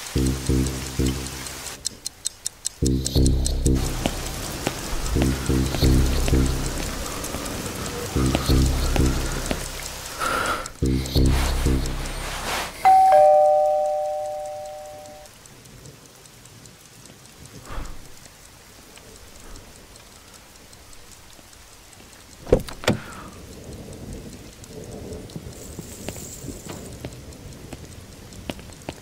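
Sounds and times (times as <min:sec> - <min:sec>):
steady rain: 0:00.0 - 0:29.0
two-tone doorbell chime: 0:12.8 - 0:15.3
door latch clicks: 0:22.4 - 0:23.1.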